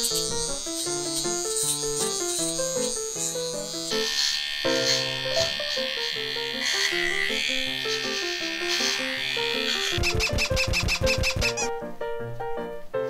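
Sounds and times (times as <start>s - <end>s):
electric pet clipper buzzing: 0.0s - 11.7s
background music: 0.0s - 13.0s.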